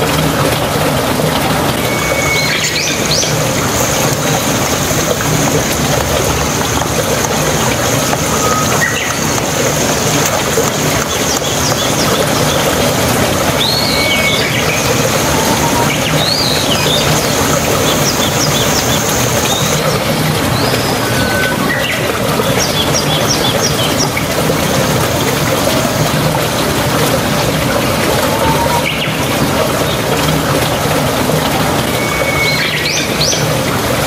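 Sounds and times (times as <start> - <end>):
bird chirps: 1.9 - 3.4.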